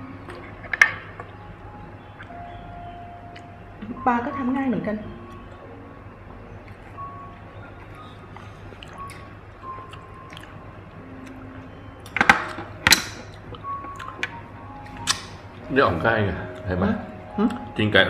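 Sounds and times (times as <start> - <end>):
slurping and chewing: 8.0 - 10.6
loud sharp clicks: 15.0 - 15.3.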